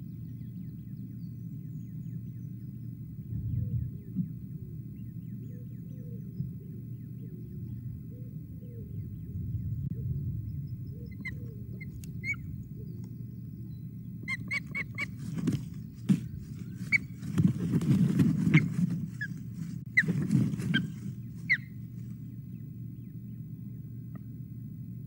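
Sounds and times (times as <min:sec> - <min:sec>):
low rumble: 0:00.0 - 0:25.0
osprey whistled chirps: 0:07.0 - 0:13.0, 0:20.7 - 0:21.8.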